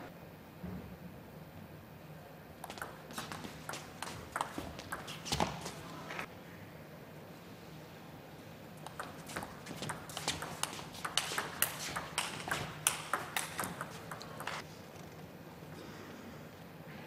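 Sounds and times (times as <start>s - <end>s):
table tennis ball clicking: 2.6s - 5.6s, 8.8s - 14.6s.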